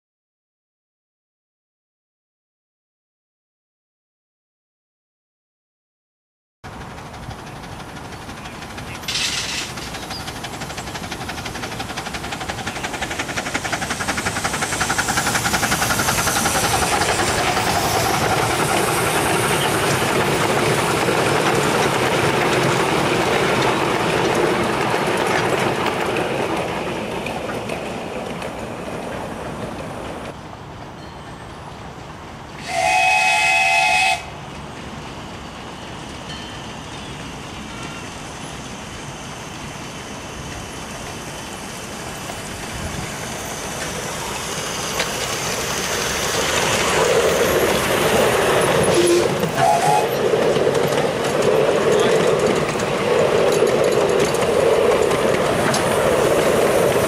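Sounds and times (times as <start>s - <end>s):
miniature steam train passing: 6.6s - 57.0s
steam locomotive whistle: 32.6s - 34.4s, 48.8s - 50.3s.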